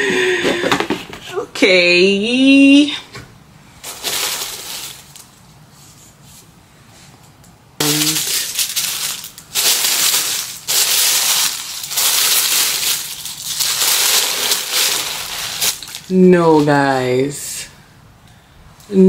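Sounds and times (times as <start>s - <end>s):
tissue paper crinkling: 3.8s - 6.2s, 7.8s - 16.2s.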